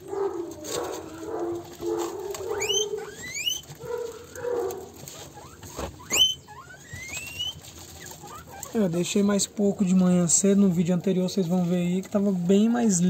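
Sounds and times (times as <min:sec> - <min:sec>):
guinea pigs squealing: 0:00.0 - 0:09.6
guinea pigs low calls: 0:00.0 - 0:11.5.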